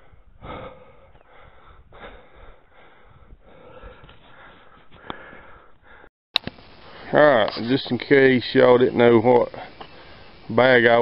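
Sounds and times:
man breathing hard while walking: 0:00.0 - 0:06.1.

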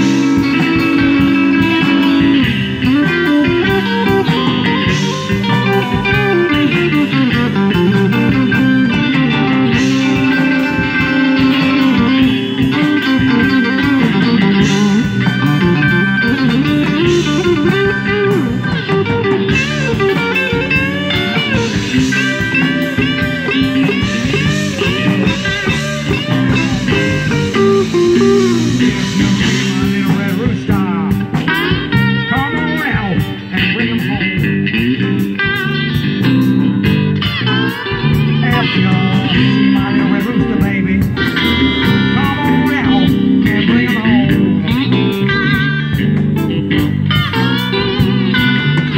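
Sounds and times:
bass guitar: 0:00.0 - 0:48.9
electric guitar lead: 0:00.0 - 0:48.9
steady drum beat: 0:00.0 - 0:48.9.

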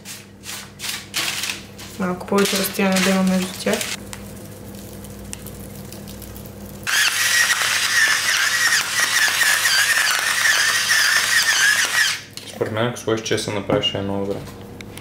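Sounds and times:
electric salt grinder whining: 0:06.8 - 0:12.3.

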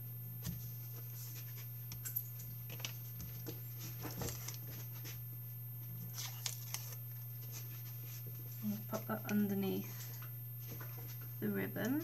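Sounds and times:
steady low hum: 0:00.0 - 0:12.0
card and tape rustling: 0:02.7 - 0:05.1, 0:06.0 - 0:08.0.

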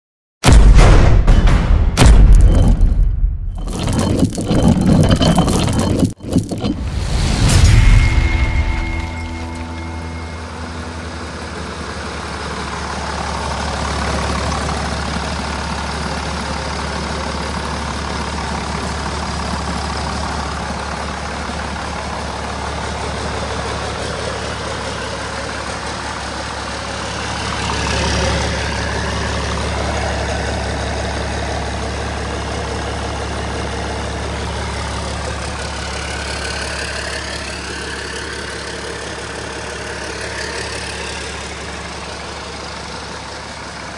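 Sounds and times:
diesel engine idling: 0:09.4 - 0:43.9.

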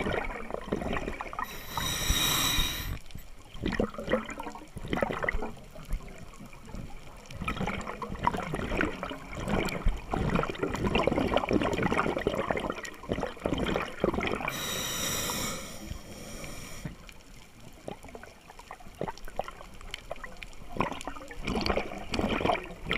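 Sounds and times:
regulator bubbling underwater: 0:00.0 - 0:17.1, 0:17.7 - 0:22.9
regulator inhale hiss: 0:01.4 - 0:03.1, 0:14.5 - 0:17.2.

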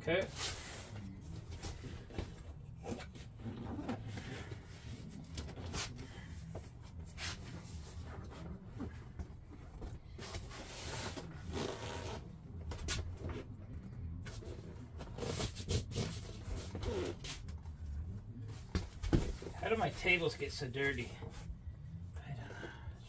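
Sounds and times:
steady low hum: 0:00.0 - 0:23.0
rustling and scraping of fabric cover: 0:00.2 - 0:13.6.

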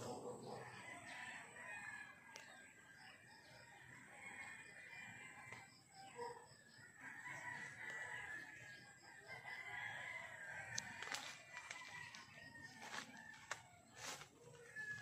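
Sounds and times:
rooster crowing: 0:07.0 - 0:15.0.

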